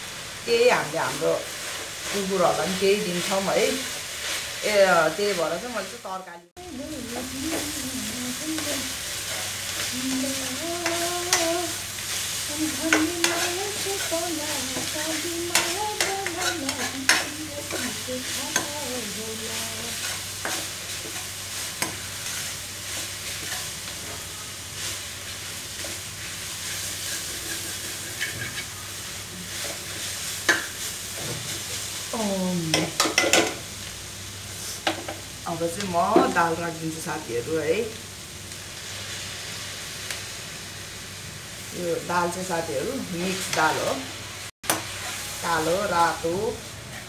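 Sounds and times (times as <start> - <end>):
food sizzling in a pan: 0.0 - 47.0
ladle scraping and clinking pan: 27.0 - 28.7.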